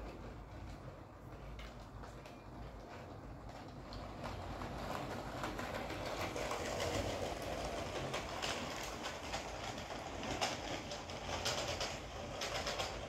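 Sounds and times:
wheels clicking over rail joints: 0.0 - 13.0
toy train motor whirring: 4.7 - 13.0.

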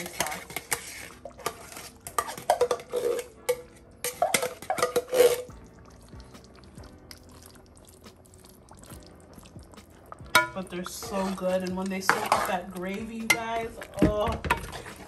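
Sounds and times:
spoon scraping a metal pot: 0.0 - 5.6, 10.2 - 15.0
stirring thick stew: 0.0 - 15.0.

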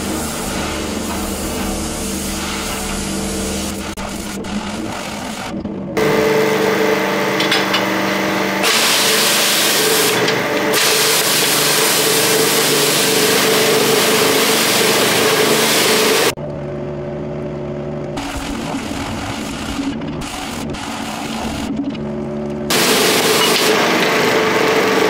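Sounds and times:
pressure washer spray hissing: 0.0 - 5.4, 8.6 - 16.4, 22.7 - 23.8
steady machine hum: 0.0 - 25.0.

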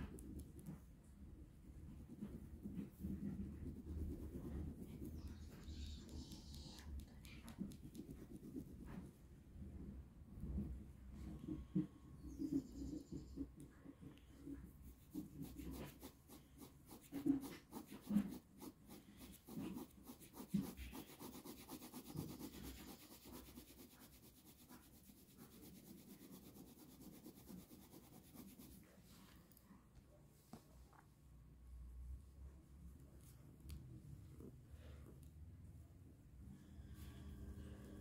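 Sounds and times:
pen scratching on paper: 14.5 - 28.8.

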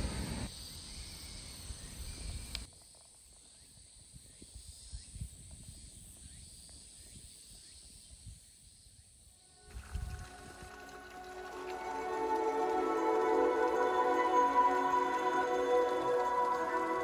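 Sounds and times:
wind rumble on microphone: 9.7 - 11.0.

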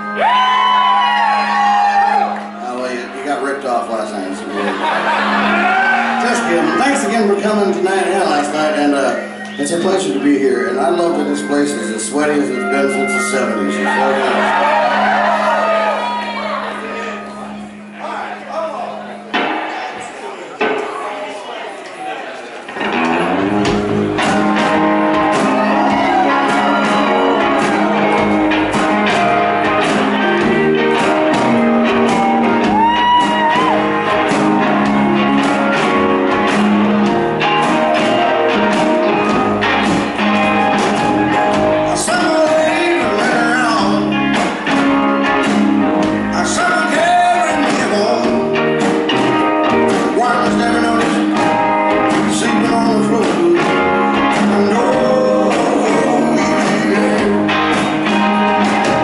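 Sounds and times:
rock band playing live: 0.0 - 21.2, 22.6 - 59.0
man singing into microphone: 41.9 - 44.2, 46.3 - 48.5, 50.0 - 51.5, 52.1 - 57.6.

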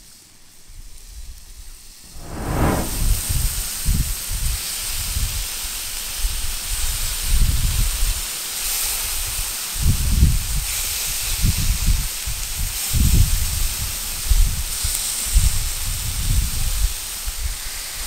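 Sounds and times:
wind rumbling on microphone: 2.1 - 3.7.

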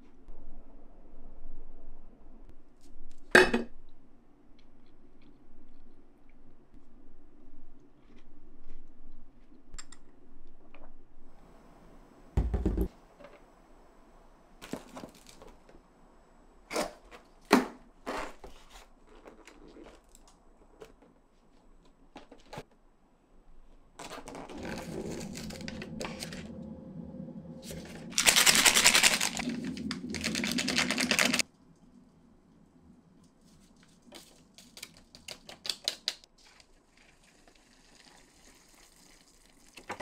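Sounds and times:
plastic packaging crinkling and tearing: 27.7 - 31.4.

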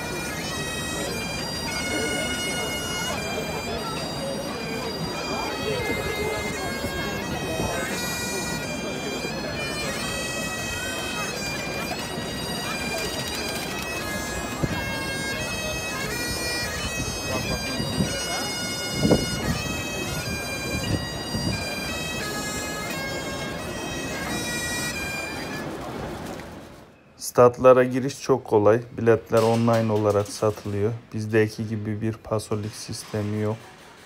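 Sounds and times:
wind instrument melody: 0.0 - 26.8
murmur of large crowd: 0.0 - 34.0.

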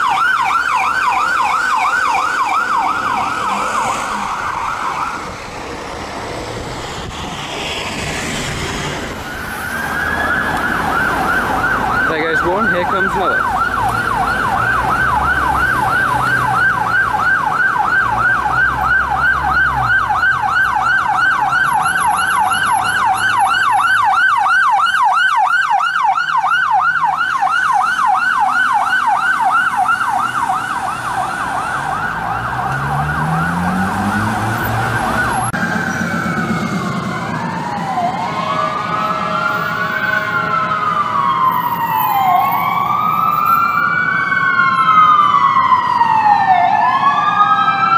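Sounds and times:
siren yelping: 0.0 - 47.9
sirens wailing: 0.0 - 47.9
traffic noise: 0.0 - 47.9.

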